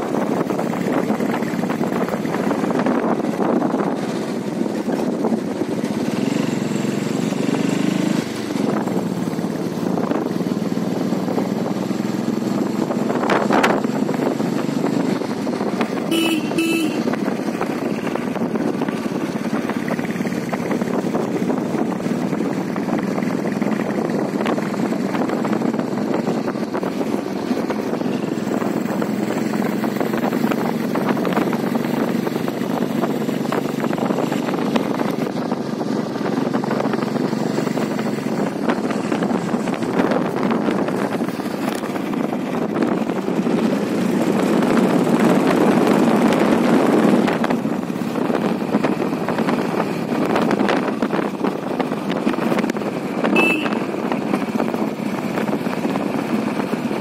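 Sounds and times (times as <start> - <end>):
vehicle engine and road noise: 0.0 - 57.0
vehicle horn toot: 16.1 - 17.2, 53.3 - 54.0.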